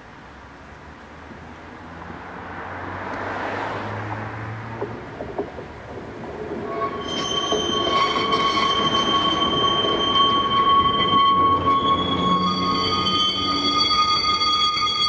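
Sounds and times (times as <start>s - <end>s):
tram wheels squealing: 4.7s - 15.0s.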